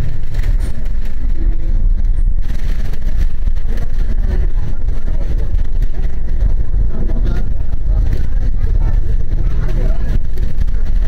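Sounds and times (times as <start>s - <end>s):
bus engine and road noise: 0.0s - 11.0s.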